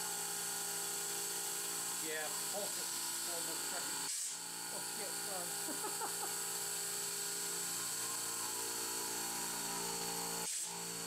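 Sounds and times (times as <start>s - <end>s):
milling machine spindle whine: 0.0s - 11.0s
compressed air hissing: 2.1s - 4.4s, 10.4s - 11.0s.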